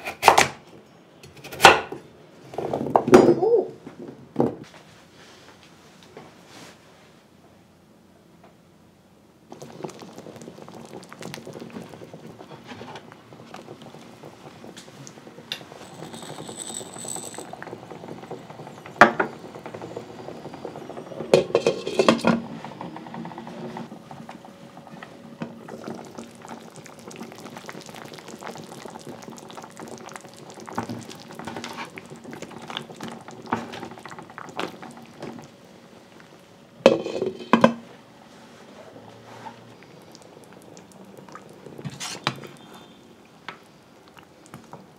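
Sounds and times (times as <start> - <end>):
broth bubbling in pot: 9.5 - 37.8, 38.8 - 44.9.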